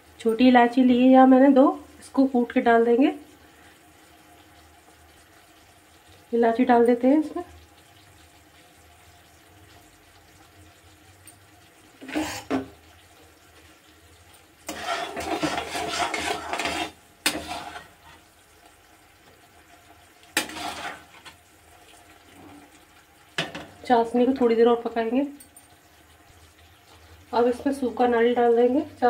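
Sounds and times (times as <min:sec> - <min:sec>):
metal ladle scraping metal pan: 0:12.0 - 0:12.7, 0:14.7 - 0:18.2, 0:20.4 - 0:21.4.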